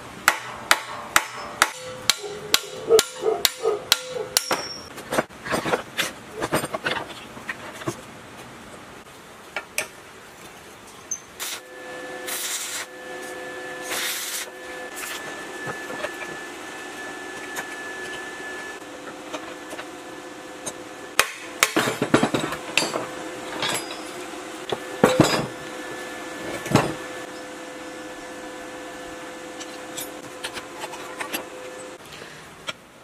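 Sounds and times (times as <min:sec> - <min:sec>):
hammer striking steel chisel: 0:00.2 - 0:04.9
hiss: 0:11.4 - 0:12.9, 0:13.8 - 0:15.2.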